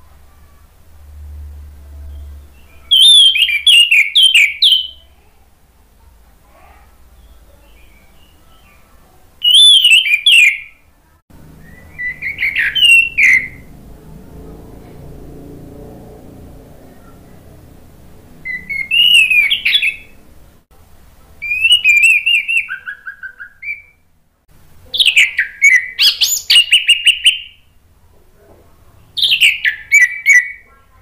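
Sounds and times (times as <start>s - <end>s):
thrush singing whistled notes: 2.1s - 5.1s, 9.4s - 10.8s, 11.4s - 13.8s, 18.4s - 20.2s, 21.4s - 24.0s, 25.0s - 27.7s, 29.2s - 30.6s.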